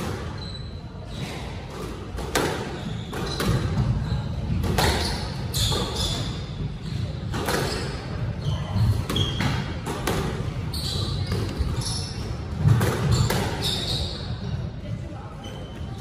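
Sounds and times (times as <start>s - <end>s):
sneaker squeaks on wooden floor: 0.0s - 14.6s, 15.3s - 16.0s
squash ball knocks echoing: 1.7s - 6.3s, 7.2s - 13.6s.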